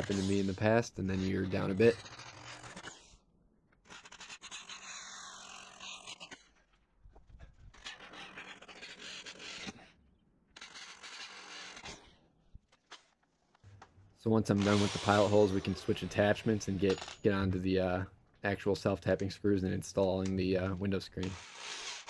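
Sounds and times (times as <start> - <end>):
drill grinding into sheet metal: 14.6 - 15.4.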